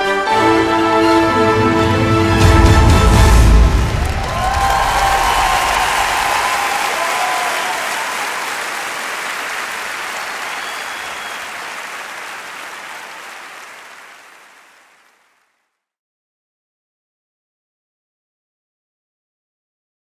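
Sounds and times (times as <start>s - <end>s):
music: 0.0s - 5.8s
audience applauding: 3.0s - 15.5s.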